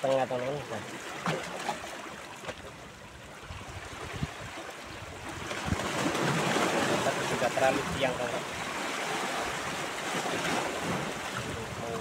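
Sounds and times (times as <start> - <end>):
wind bumps on microphone: 3.4 - 8.3
waves splashing on rocks: 4.0 - 12.0.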